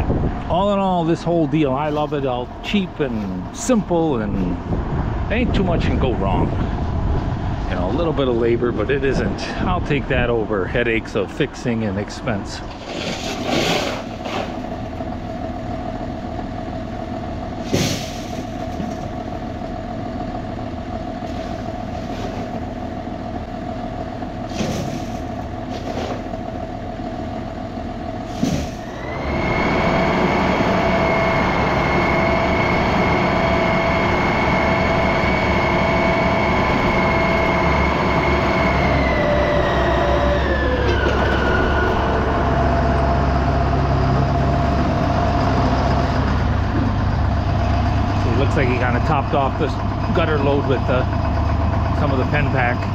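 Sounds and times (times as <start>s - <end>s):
machine high whine: 28.8s - 45.6s
grinder-mixer humming: 28.9s - 48.9s.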